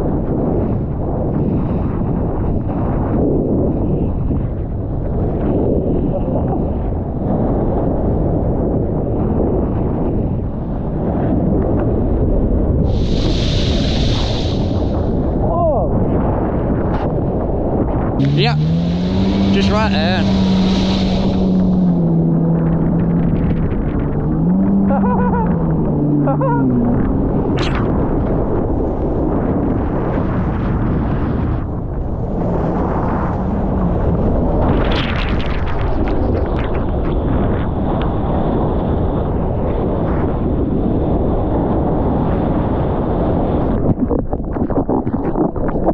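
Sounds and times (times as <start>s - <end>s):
rush of wind and water: 0.0s - 45.9s
brief hiss: 13.0s - 15.0s
jet ski engine running: 18.2s - 27.4s.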